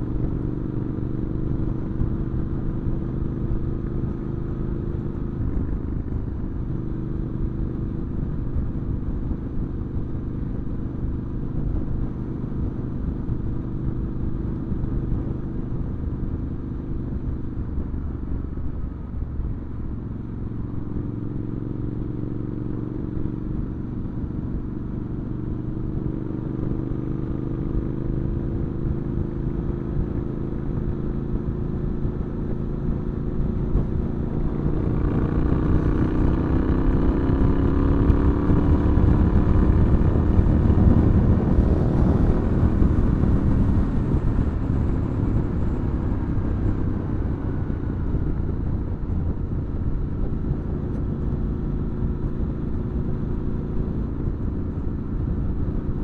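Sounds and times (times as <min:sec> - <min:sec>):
motorcycle engine running: 0:00.0 - 0:56.0
wind rush on microphone: 0:31.6 - 0:56.0.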